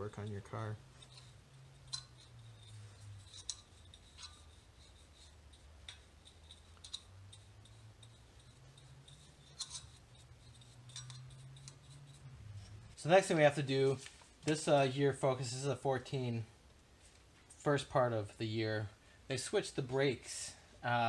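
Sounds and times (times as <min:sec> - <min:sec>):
small brush clicking and scraping: 0:00.1 - 0:13.0.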